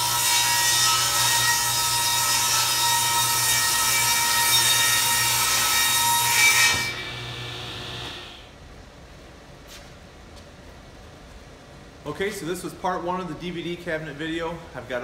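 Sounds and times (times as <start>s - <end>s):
table saw cutting plywood: 0.0s - 8.5s.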